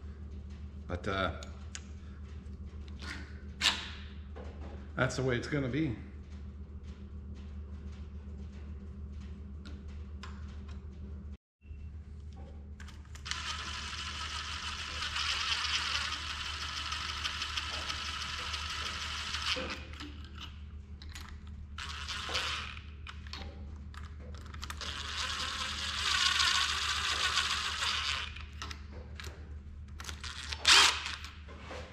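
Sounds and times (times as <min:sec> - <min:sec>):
cordless power driver spinning: 0:12.9 - 0:20.4, 0:21.8 - 0:23.2, 0:24.6 - 0:28.8, 0:30.0 - 0:31.4.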